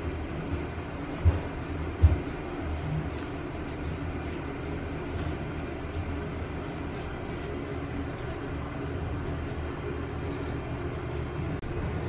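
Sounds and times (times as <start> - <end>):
low mechanical machine hum: 0.0 - 12.0.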